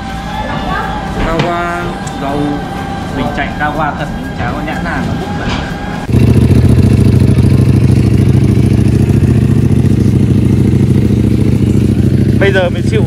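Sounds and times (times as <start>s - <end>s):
motorcycle engine running: 4.2s - 13.0s.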